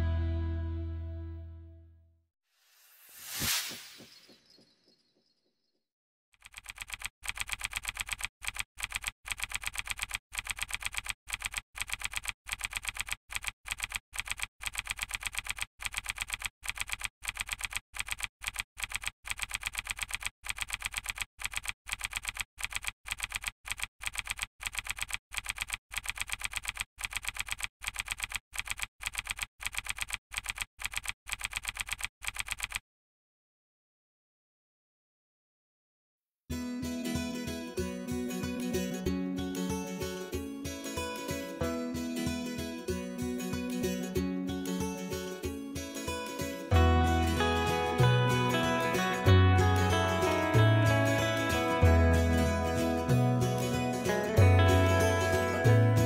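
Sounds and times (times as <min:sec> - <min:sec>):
typewriter keystroke clicks: 0:06.4 - 0:32.8.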